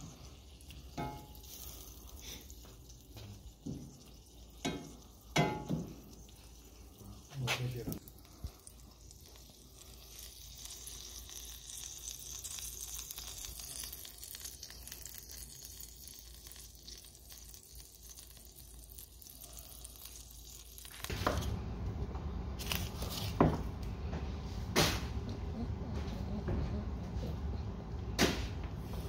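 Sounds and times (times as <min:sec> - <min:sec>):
chicken sizzling on a grill: 0:00.0 - 0:21.5.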